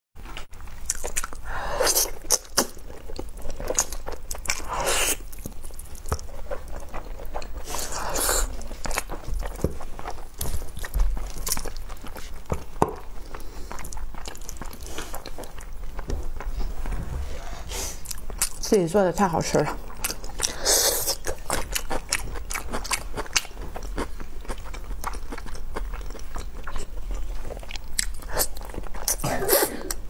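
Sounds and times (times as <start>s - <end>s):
wet chewing and lip-smacking: 0.3s - 16.3s, 19.9s - 30.0s
sucking sounds: 16.4s - 18.7s.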